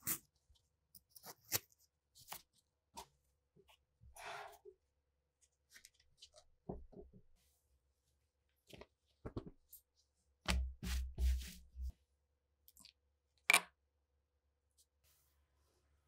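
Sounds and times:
hands rubbing leather with thumps: 0:10.5 - 0:11.9.

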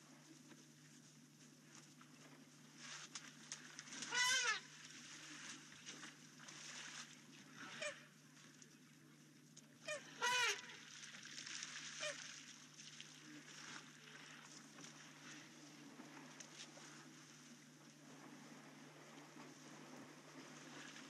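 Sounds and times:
faint steady hum: 0:00.0 - 0:21.0
animal calls: 0:04.1 - 0:04.7, 0:09.9 - 0:10.7.

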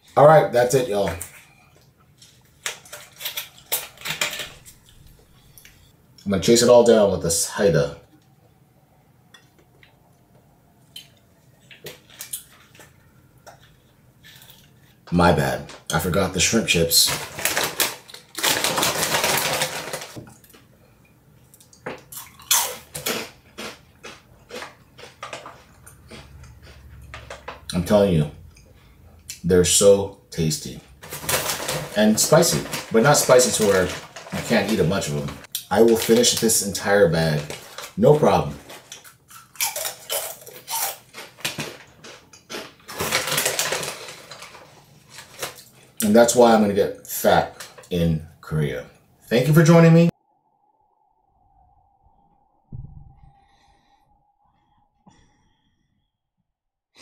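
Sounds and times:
crinkly plastic bag rummaged: 0:16.4 - 0:20.2, 0:31.0 - 0:39.0, 0:41.1 - 0:46.0
chips crunching while chewed: 0:21.6 - 0:27.9, 0:31.0 - 0:45.8.

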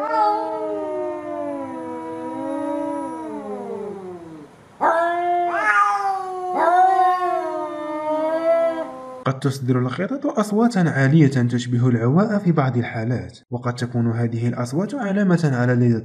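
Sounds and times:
cat yowling: 0:00.0 - 0:09.2.

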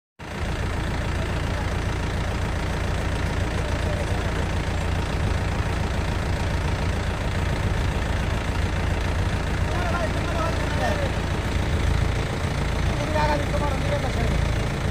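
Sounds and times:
tractor diesel engine running: 0:00.2 - 0:14.9.

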